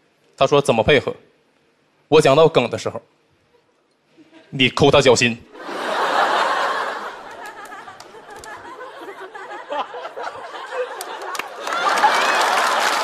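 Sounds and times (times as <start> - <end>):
studio audience laughing: 5.6 - 13.0
applause: 7.3 - 8.6, 10.9 - 13.0.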